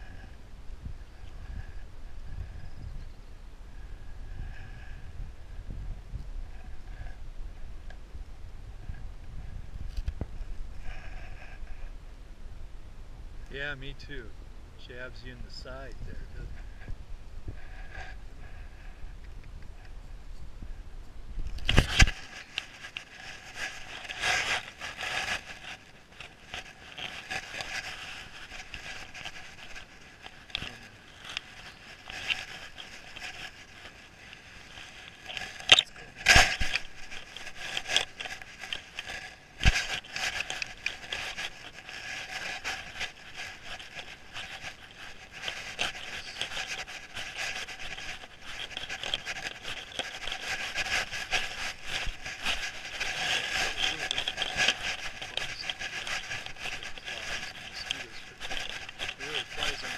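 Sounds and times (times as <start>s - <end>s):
brush scraping and crackling: 13.5s - 20.0s, 21.4s - 59.9s.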